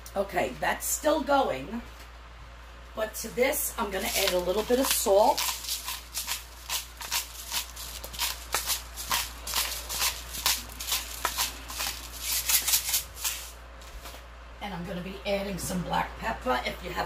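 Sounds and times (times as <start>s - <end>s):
salt grinder strokes: 4.0s - 13.6s.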